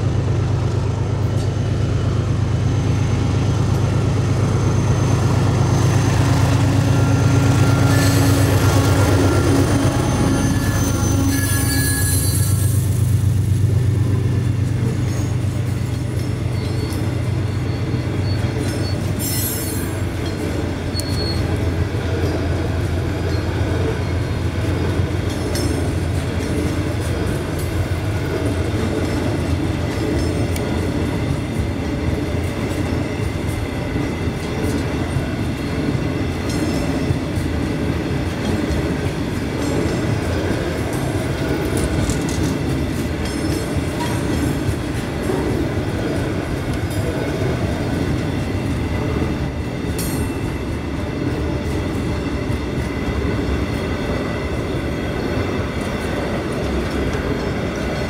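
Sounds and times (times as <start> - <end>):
locomotive engine drone: 0.0 - 58.0
train wheels rumbling on rails: 0.0 - 58.0
high wheel squeals: 4.3 - 13.2, 16.4 - 20.2, 20.8 - 21.6.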